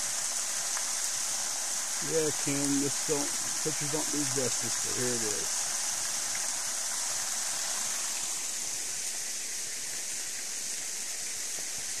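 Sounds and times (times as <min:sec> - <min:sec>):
spring water rushing and splashing: 0:00.0 - 0:12.0.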